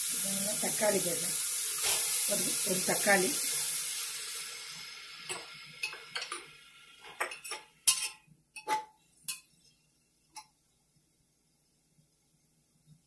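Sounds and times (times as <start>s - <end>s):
frying sizzle: 0.0s - 13.0s.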